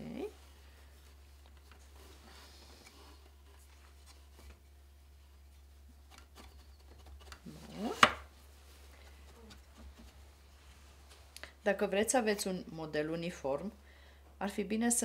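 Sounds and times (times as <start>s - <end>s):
fabric rubbing on loom: 7.4s - 11.0s.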